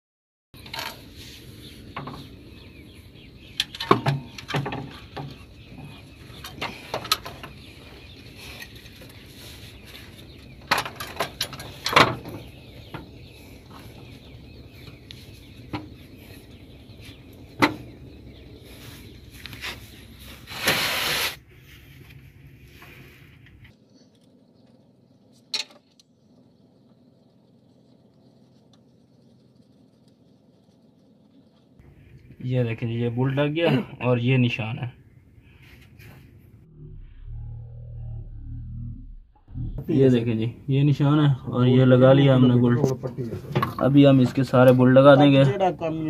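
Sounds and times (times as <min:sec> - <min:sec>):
metal scrape: 0:18.8 - 0:21.4.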